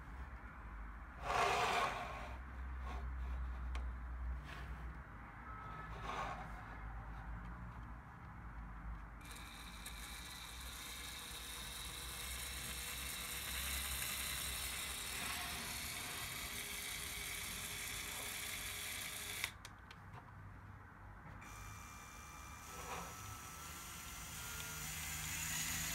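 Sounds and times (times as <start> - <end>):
electric motor whirring: 9.2 - 19.6, 21.4 - 25.9.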